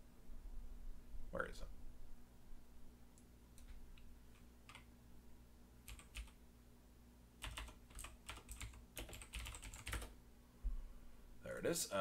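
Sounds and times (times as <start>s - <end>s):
low steady hum: 0.0s - 12.0s
keyboard typing: 4.6s - 4.9s, 5.9s - 6.4s, 7.4s - 10.2s.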